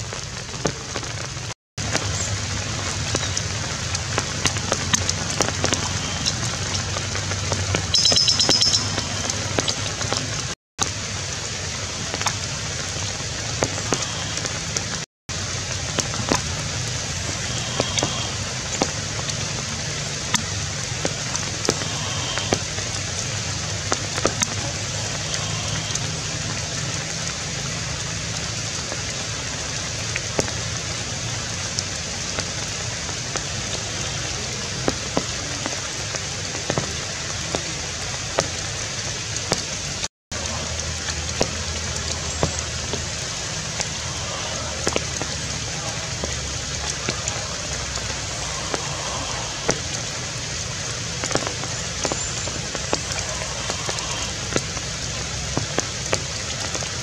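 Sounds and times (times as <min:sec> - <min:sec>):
rain falling through trees: 0:00.0 - 0:57.0
sharp water drips: 0:00.0 - 0:57.0
rapid high chirping: 0:07.9 - 0:09.2.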